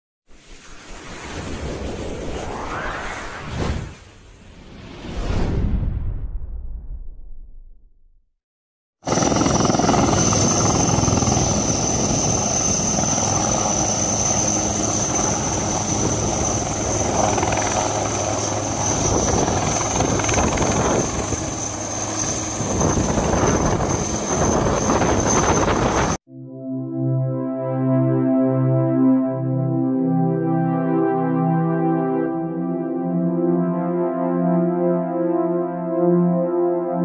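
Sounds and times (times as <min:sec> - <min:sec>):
helicopter rotor blades beating: 0:09.0 - 0:26.2
high helicopter whine: 0:09.0 - 0:26.2.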